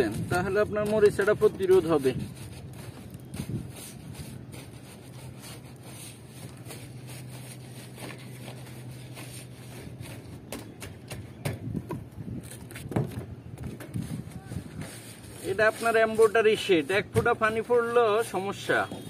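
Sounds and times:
paint brush scraping on tin: 0:00.0 - 0:10.0, 0:14.0 - 0:19.0
steady low hum: 0:00.0 - 0:19.0.

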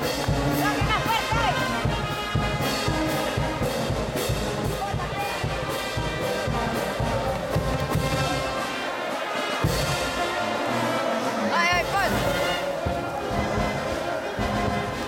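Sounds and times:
low drum beat: 0:00.0 - 0:08.7
brass band playing: 0:00.0 - 0:15.0.

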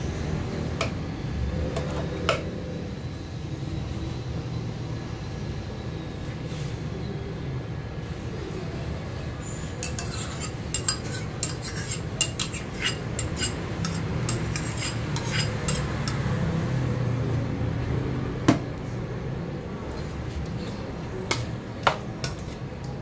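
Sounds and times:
metal spoon scraping a bowl: 0:09.4 - 0:16.4.

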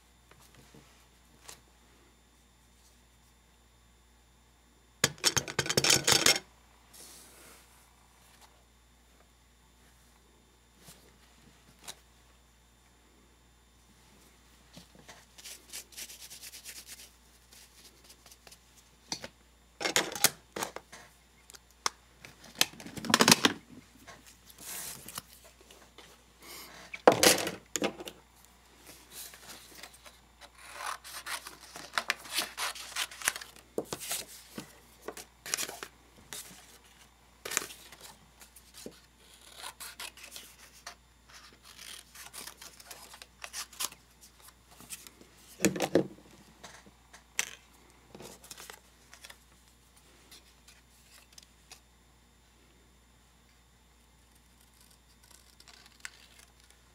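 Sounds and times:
paper and tape rustling: 0:29.1 - 0:45.7.

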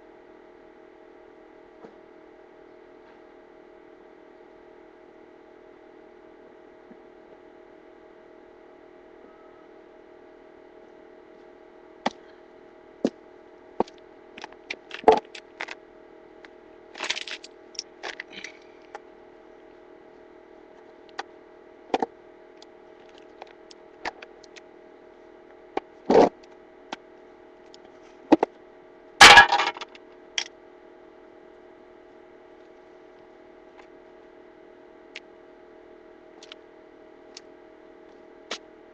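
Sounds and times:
faint steady hum: 0:00.0 - 0:38.9
metal parts clattering: 0:29.2 - 0:29.8.

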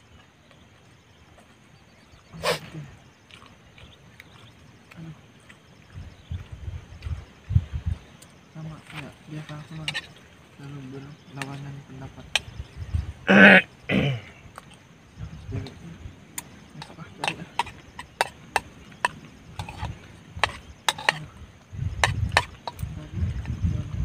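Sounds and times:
spoon clicking against a bowl: 0:16.8 - 0:21.2.

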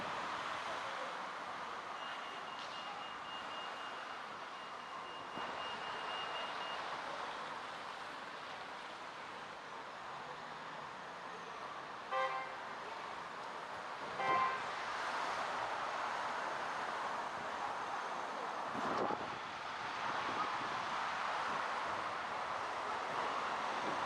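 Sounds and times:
street traffic: 0:00.0 - 0:24.0
car horn toot: 0:12.1 - 0:12.6, 0:14.2 - 0:14.6.

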